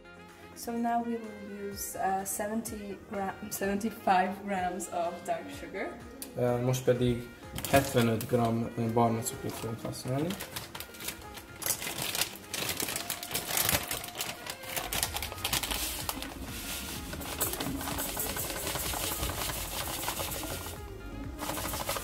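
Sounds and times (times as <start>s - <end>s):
background music: 0.0s - 22.0s
utensil scraping against bowl: 15.6s - 20.8s.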